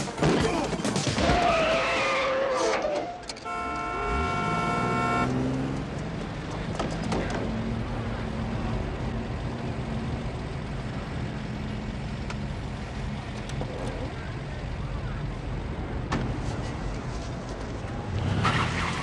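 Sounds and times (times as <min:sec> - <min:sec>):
city street traffic: 0:00.0 - 0:19.0
car horn: 0:03.1 - 0:05.6.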